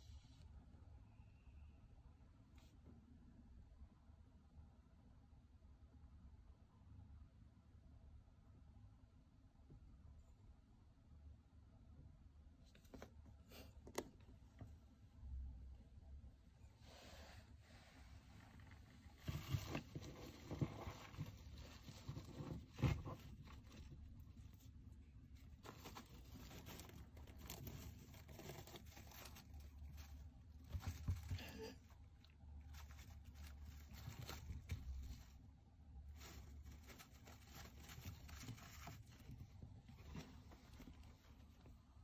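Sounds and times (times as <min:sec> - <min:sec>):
scraping and rustling in bedding: 0:16.8 - 0:42.0.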